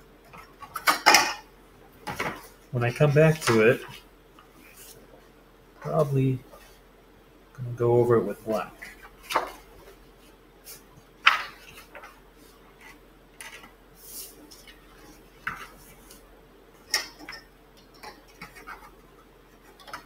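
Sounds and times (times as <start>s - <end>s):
paper rustling: 8.8s - 10.0s.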